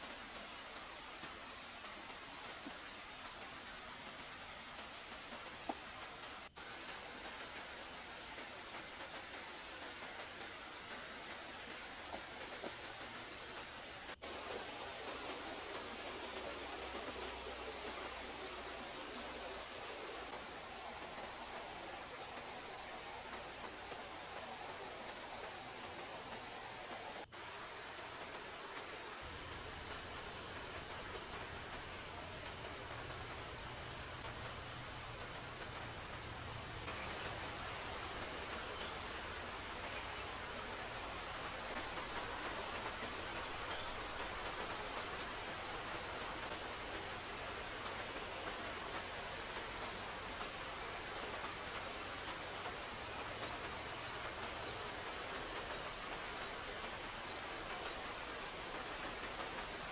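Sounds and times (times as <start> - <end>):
forest ambience hiss: 0.0 - 59.9
insects trilling: 28.8 - 59.9.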